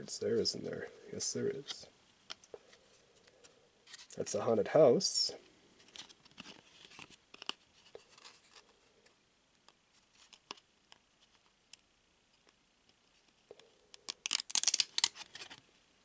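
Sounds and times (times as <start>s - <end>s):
card snaps and rustles: 5.9s - 8.6s, 14.0s - 15.6s
cards sliding: 14.0s - 15.6s.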